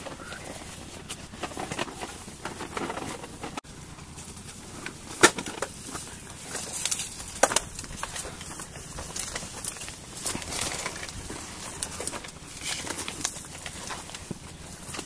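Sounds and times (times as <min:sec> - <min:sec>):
leaves and branches rustling: 0:00.0 - 0:15.0
twigs cracking: 0:04.3 - 0:15.0.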